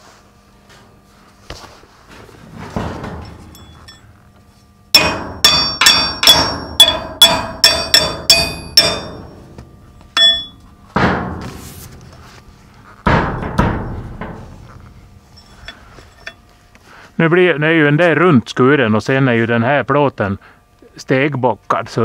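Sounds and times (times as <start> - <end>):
hammer ringing on steel: 4.9 - 11.4
heavy dull knocks: 5.0 - 12.2, 13.0 - 15.0.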